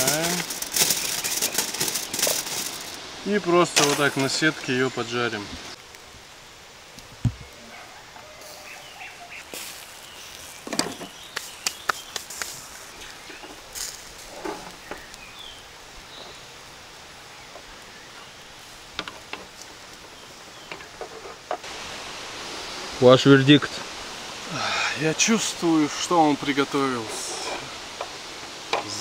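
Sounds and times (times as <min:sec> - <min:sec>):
faint meat sizzle: 0:00.0 - 0:06.2, 0:07.4 - 0:16.5, 0:21.6 - 0:29.0
fat crackling on a fire: 0:00.0 - 0:07.6, 0:08.4 - 0:22.8, 0:23.8 - 0:29.0.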